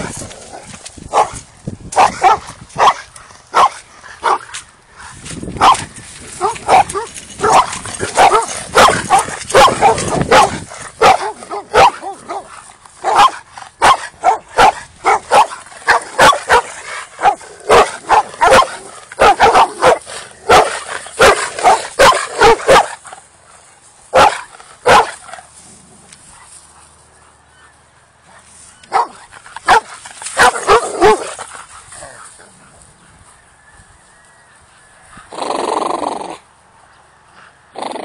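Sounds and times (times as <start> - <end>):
dogs barking: 1.1 - 4.6, 5.6 - 23.1, 24.1 - 25.3, 28.9 - 32.8.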